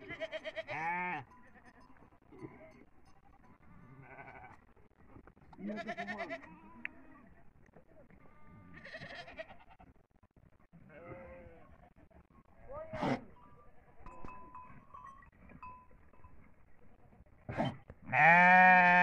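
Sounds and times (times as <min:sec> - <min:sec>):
goat kids bleating: 0:00.0 - 0:01.9, 0:04.0 - 0:04.6, 0:05.6 - 0:07.3, 0:08.2 - 0:09.9, 0:18.1 - 0:19.0.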